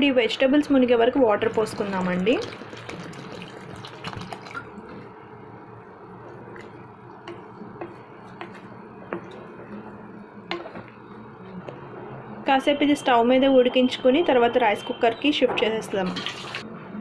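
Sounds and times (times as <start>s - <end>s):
steady low hum: 0.9s - 12.9s
spatula stirring wet food: 1.5s - 11.9s.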